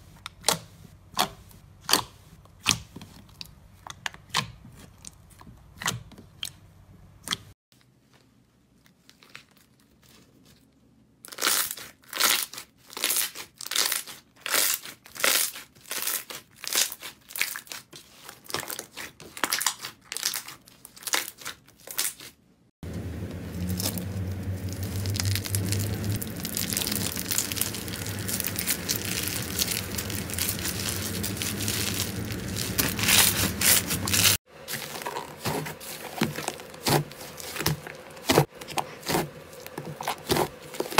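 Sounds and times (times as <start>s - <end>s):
slime crackling squishes: 11.3s - 40.9s
low hum: 22.8s - 35.4s.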